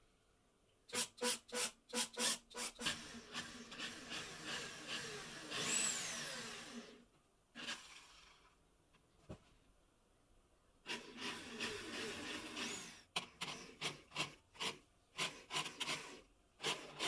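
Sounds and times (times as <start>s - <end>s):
power drill boring into plywood: 1.2s - 7.0s, 10.9s - 17.0s.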